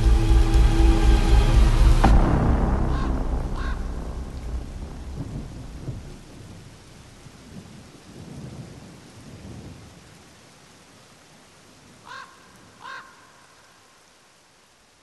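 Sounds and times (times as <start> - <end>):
deep thunder rumbling: 0.0 - 10.0
faint rain-like hiss: 0.0 - 15.0.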